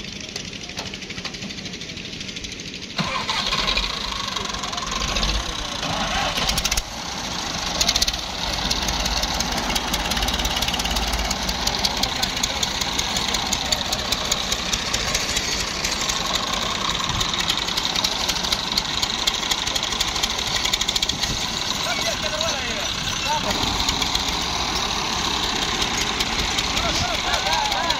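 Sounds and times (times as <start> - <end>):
tractor diesel engine clatter: 0.0 - 27.9.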